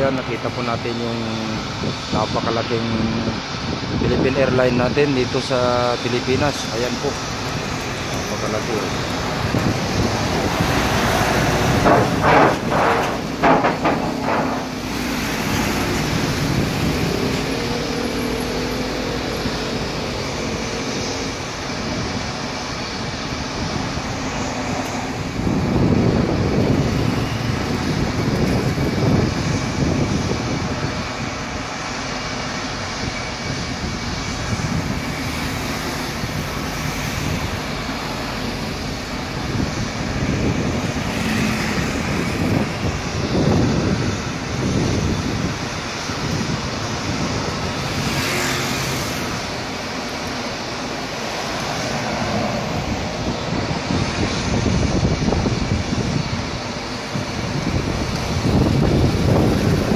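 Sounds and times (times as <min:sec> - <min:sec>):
jet engines rumbling: 0:00.0 - 0:59.9
road traffic noise: 0:00.0 - 0:59.9
knocks: 0:11.8 - 0:15.2.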